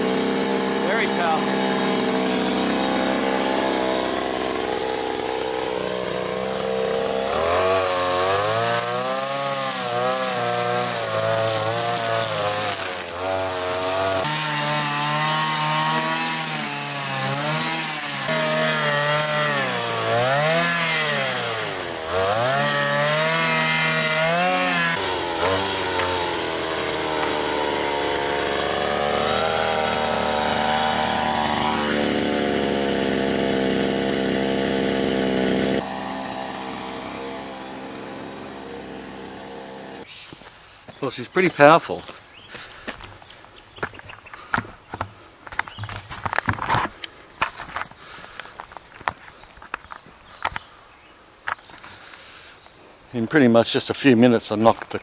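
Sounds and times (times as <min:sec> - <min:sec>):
brushcutter cutting weeds: 0:00.0 - 0:40.1.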